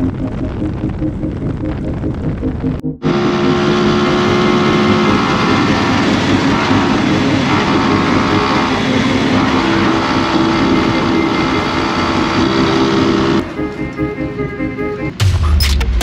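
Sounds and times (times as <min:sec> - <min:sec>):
wind noise: 0:00.0 - 0:08.9
motorcycle engine running: 0:00.0 - 0:13.7
road noise: 0:00.0 - 0:15.3.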